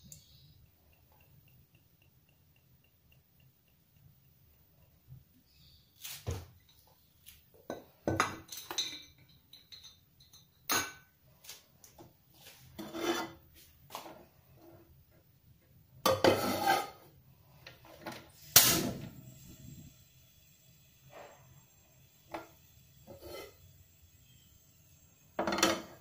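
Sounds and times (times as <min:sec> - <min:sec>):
pan scraping on stove: 0:12.4 - 0:14.9, 0:16.0 - 0:19.6, 0:22.3 - 0:23.7
frying pan and utensils clattering: 0:16.1 - 0:17.0, 0:25.4 - 0:26.0.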